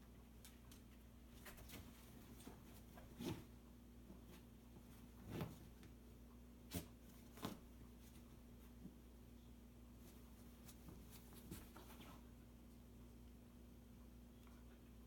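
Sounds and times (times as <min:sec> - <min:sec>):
fabric rustling: 0:04.3 - 0:05.9, 0:06.7 - 0:08.3.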